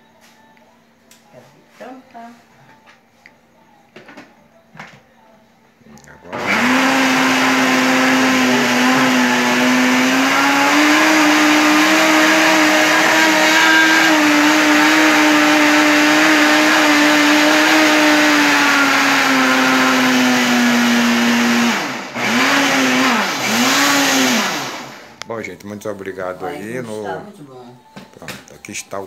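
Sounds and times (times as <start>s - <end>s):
electric blender motor running: 6.3s - 25.2s.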